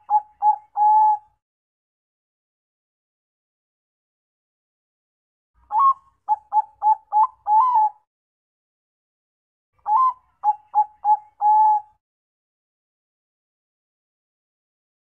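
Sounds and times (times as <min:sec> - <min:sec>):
dove cooing song: 0:00.0 - 0:01.4, 0:05.7 - 0:08.1, 0:09.8 - 0:12.0.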